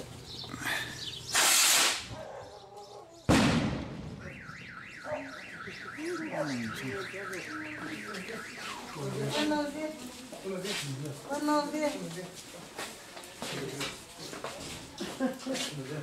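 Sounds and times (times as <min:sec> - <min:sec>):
firework hissing whoosh: 0:01.3 - 0:02.1
firework bang: 0:03.3 - 0:04.8
car alarm warbling: 0:04.1 - 0:09.7.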